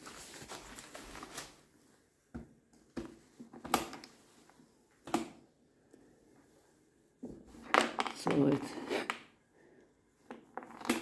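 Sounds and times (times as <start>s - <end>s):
rustling handling noise: 0.0s - 5.0s.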